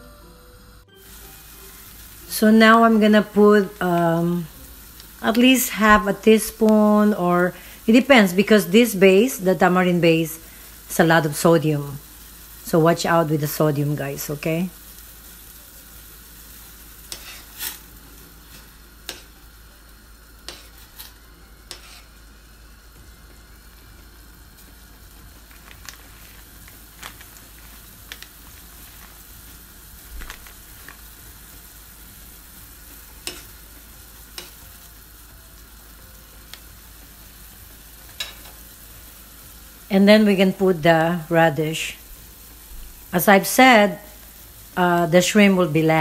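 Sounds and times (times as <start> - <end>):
broth simmering hiss: 0.0 - 46.0
metal spoon clicking on pan: 33.2 - 33.5.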